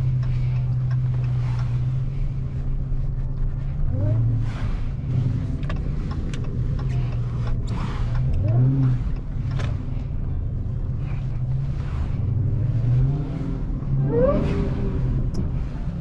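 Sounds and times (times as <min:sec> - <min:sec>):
car engine running: 0:00.0 - 0:16.0.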